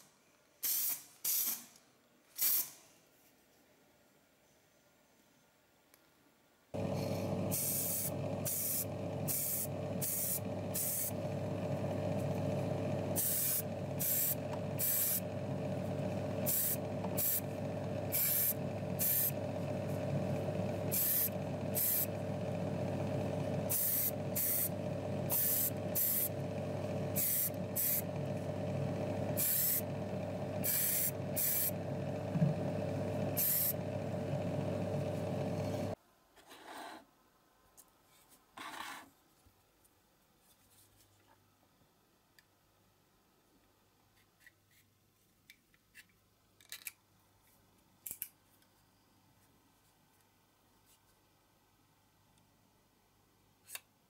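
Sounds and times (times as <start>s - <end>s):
paint spray hissing bursts: 0.6s - 1.7s, 6.9s - 11.2s, 13.2s - 15.2s, 16.4s - 17.5s, 18.1s - 19.4s, 20.9s - 22.1s, 23.7s - 24.7s, 25.3s - 26.4s, 27.1s - 28.1s, 29.3s - 29.9s, 30.6s - 31.8s, 33.4s - 33.8s
motor hum: 6.8s - 36.0s.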